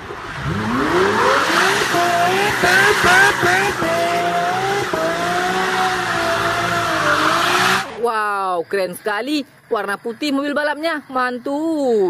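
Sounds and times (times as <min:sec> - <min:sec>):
sports car engine revving: 0:00.0 - 0:08.0.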